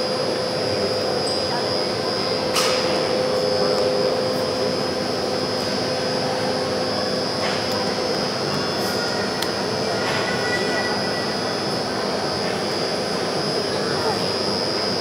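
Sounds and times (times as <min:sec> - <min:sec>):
overhead crane machine hum: 0:00.0 - 0:15.0.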